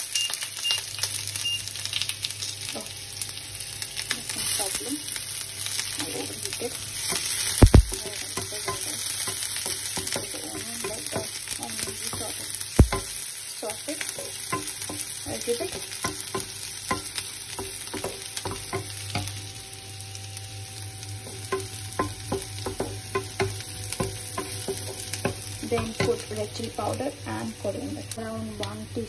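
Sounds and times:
vegetables sizzling in oil: 0.0 - 29.0
spatula tapping and scraping pan: 7.1 - 13.2, 14.2 - 19.4, 21.2 - 26.4
sharp knock: 12.8 - 13.1.

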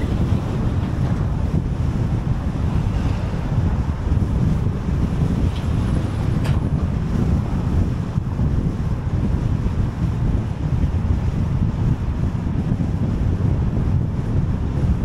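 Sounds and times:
car road noise: 0.0 - 15.0
wind buffeting microphone: 0.0 - 15.0.

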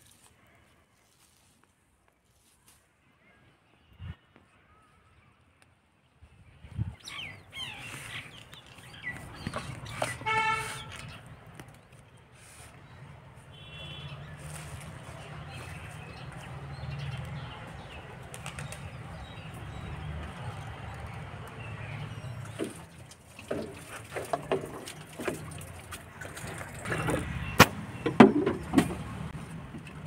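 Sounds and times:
birds calling: 6.8 - 29.0
sharp knocks and clicks: 27.0 - 29.1.

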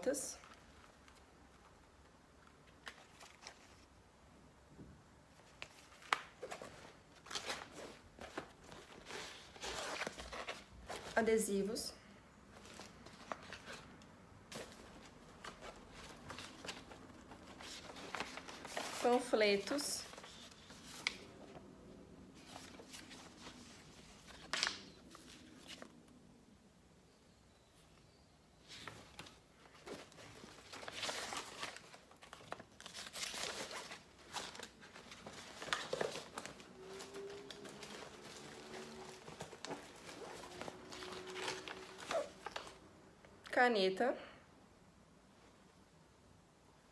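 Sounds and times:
paper rustling: 2.6 - 4.0, 5.4 - 11.3, 14.5 - 21.7, 22.3 - 26.0, 28.6 - 42.8
rummaging in a bag: 28.9 - 42.8.

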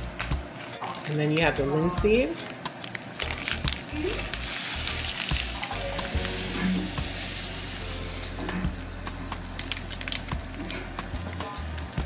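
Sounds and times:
seeds pouring into metal pot: 3.2 - 8.7.

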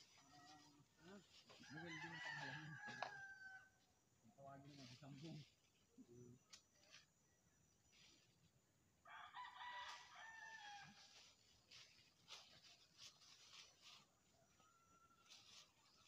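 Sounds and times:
rooster crowing: 1.6 - 3.8, 9.0 - 11.2.

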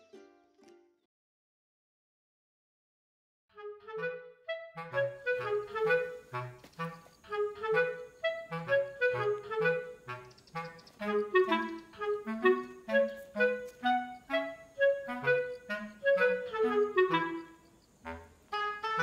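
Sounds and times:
light melody over bass line: 3.8 - 17.6.

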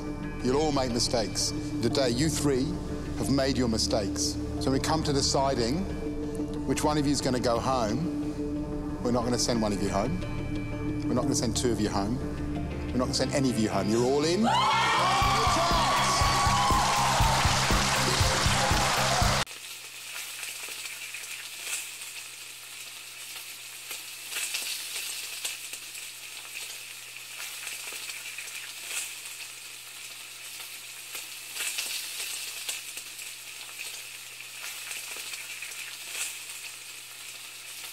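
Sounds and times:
frying sizzle with crackles: 15.8 - 37.9.

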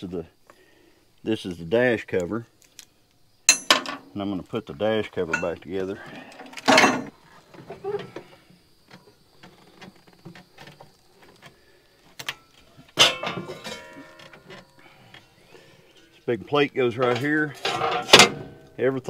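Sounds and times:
metal clank ringing: 3.5 - 4.0, 13.0 - 14.6.

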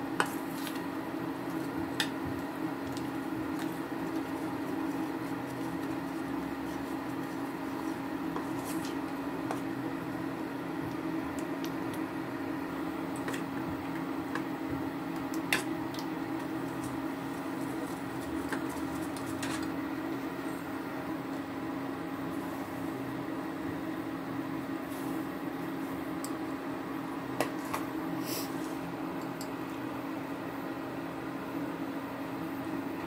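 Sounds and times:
steady low hum: 0.0 - 33.0
spoon stirring batter in bowl: 0.1 - 12.0, 13.1 - 19.7.

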